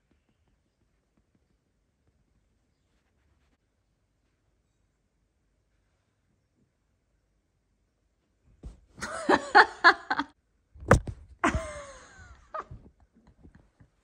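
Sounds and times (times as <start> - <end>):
person laughing: 9.0 - 10.3, 11.4 - 12.9.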